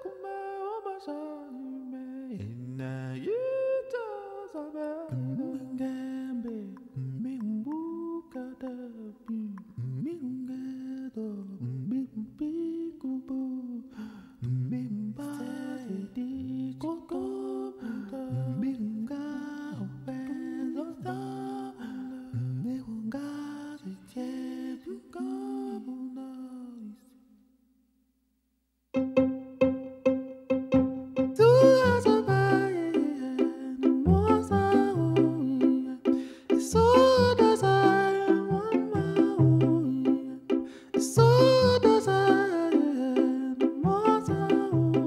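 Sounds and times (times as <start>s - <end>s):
person humming a slow melody: 31.1s - 45.0s.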